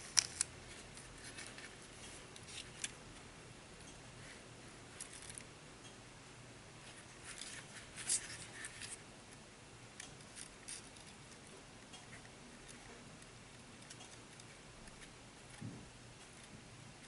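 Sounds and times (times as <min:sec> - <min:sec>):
metal wires scratching and clicking: 0:10.0 - 0:15.2.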